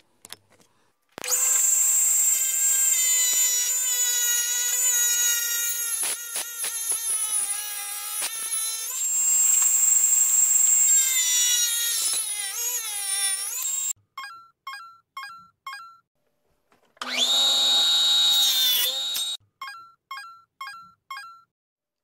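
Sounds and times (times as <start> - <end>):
table saw cutting wood: 1.2 - 14.0, 17.0 - 19.4.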